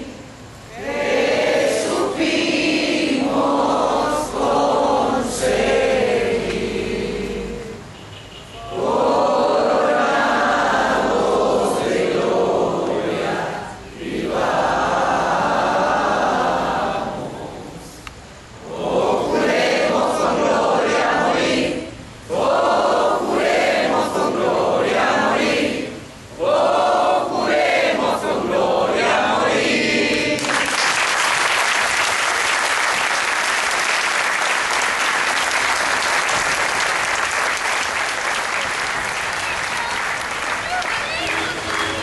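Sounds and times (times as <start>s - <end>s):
crowd singing: 0.0s - 7.9s, 8.6s - 18.0s, 18.6s - 30.7s
applause: 30.4s - 42.0s.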